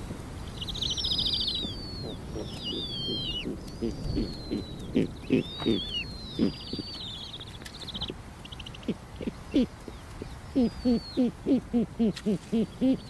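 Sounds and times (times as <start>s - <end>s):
owl hooting: 1.0s - 7.0s, 10.5s - 13.0s.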